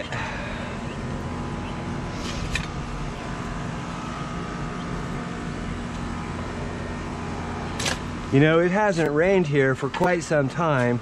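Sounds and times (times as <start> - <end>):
low machine hum: 0.0 - 11.0
shovel scraping dirt: 2.1 - 2.8.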